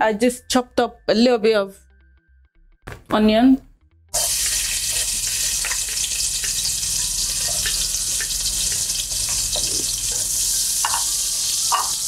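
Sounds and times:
onions sizzling in oil: 4.2 - 12.0.

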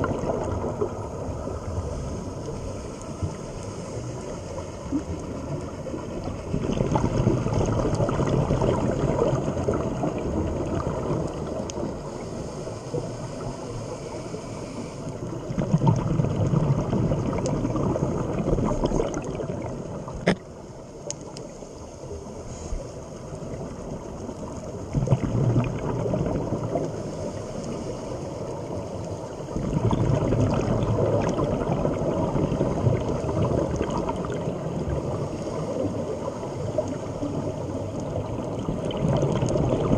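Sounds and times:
underwater regulator bubbling: 0.0 - 1.8, 4.7 - 12.0, 14.0 - 20.5, 24.9 - 27.0, 29.5 - 39.9.

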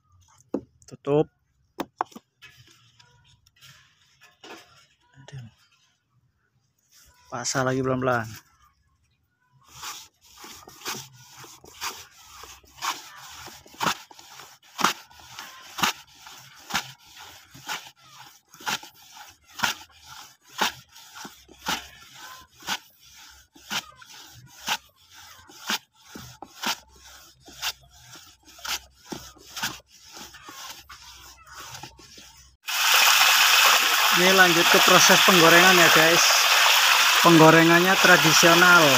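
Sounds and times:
blade scraping banana slices: 9.7 - 38.9.

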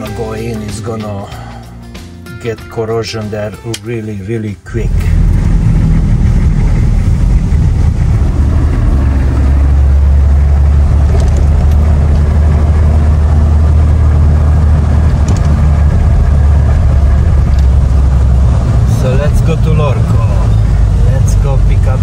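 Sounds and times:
road noise: 3.4 - 22.0
vehicle engine drone: 4.7 - 22.0.

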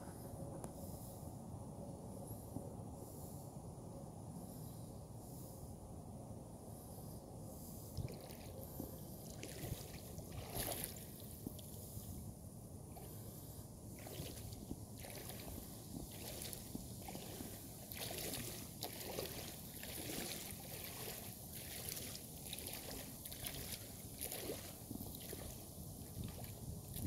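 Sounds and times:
water sloshing from wading: 7.9 - 12.2, 12.9 - 27.0.

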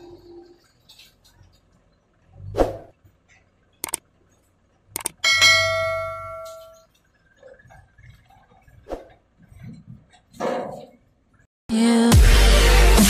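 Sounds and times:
short clicks: 3.8 - 4.0, 5.0 - 5.2
bell chime: 5.2 - 6.8.

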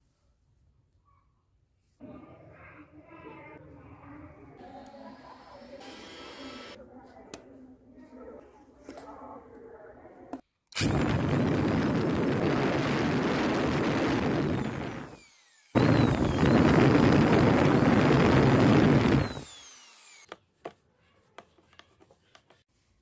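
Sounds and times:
handheld power tool running: 5.7 - 6.8, 10.8 - 20.3.

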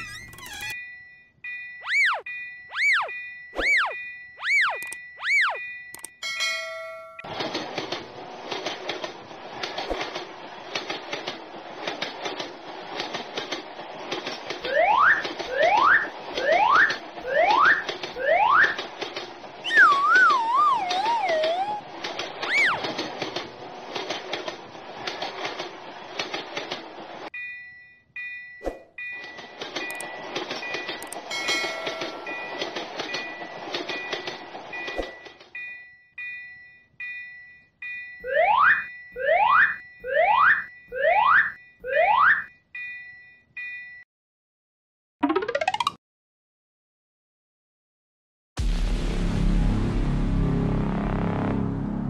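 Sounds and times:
railroad crossing bell ringing: 5.0 - 7.2, 27.3 - 38.3
train clickety-clack on rails: 6.4 - 27.3, 29.1 - 35.7
rising whistle glides: 19.6 - 21.8.

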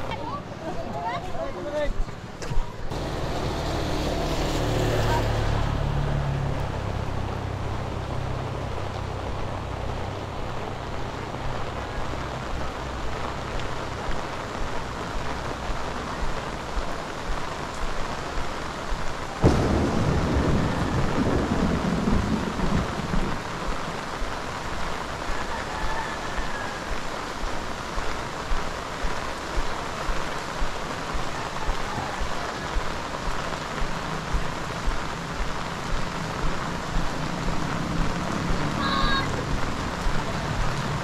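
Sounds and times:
heavy rain: 0.0 - 41.0
low engine hum: 2.9 - 16.1
thunder crack and rumble: 19.4 - 24.3.

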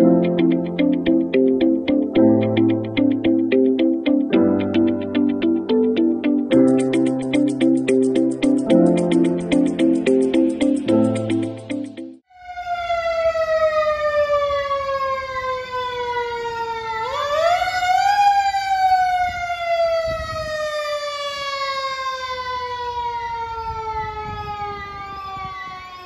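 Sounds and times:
fire truck siren wailing: 12.3 - 26.0
high warbling siren: 12.3 - 26.0.

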